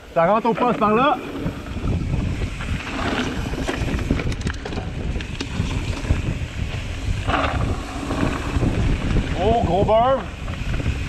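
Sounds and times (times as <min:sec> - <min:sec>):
bike tyres rolling on dirt: 0:00.0 - 0:11.0
wind buffeting microphone: 0:00.0 - 0:11.0
bike rattling clicks: 0:02.2 - 0:09.4.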